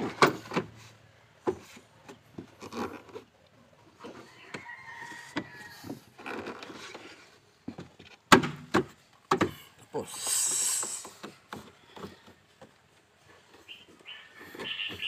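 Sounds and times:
rooster crowing: 0:04.2 - 0:06.0.

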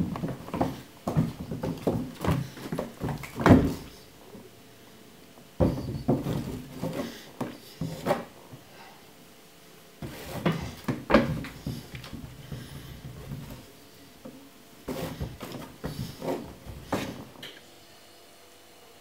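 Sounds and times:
hand patting floorboards: 0:00.0 - 0:04.0, 0:05.6 - 0:08.6, 0:10.0 - 0:17.4.

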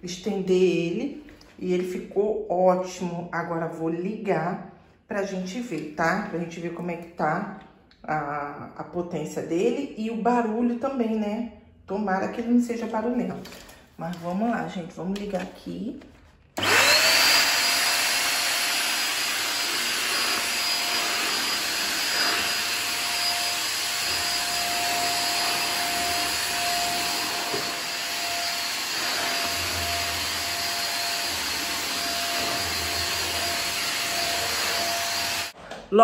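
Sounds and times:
vacuum cleaner whining: 0:16.6 - 0:35.6
vacuum head pushed on tiled floor: 0:16.6 - 0:35.8.

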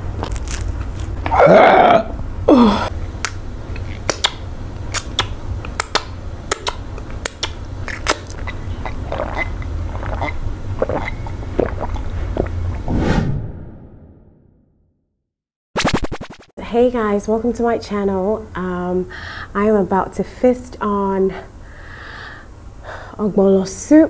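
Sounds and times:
low steady hum: 0:00.0 - 0:12.9
loud burps: 0:01.3 - 0:02.2
wet chewing and mouth clicks: 0:03.8 - 0:12.7.

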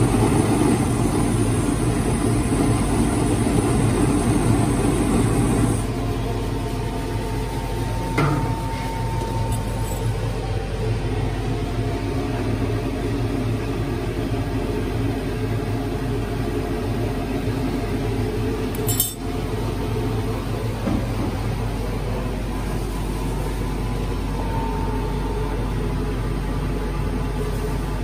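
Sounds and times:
gas torch flame roaring: 0:00.0 - 0:23.8
metal ladle clinking on bricks: 0:18.8 - 0:19.2.

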